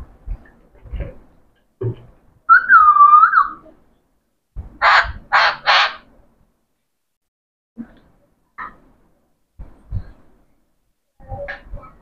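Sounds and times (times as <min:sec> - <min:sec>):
parakeet whistle: 0:02.5 - 0:03.7
soft low thumps: 0:04.5 - 0:05.3, 0:09.6 - 0:10.4
parakeet harsh squawks: 0:04.8 - 0:06.1.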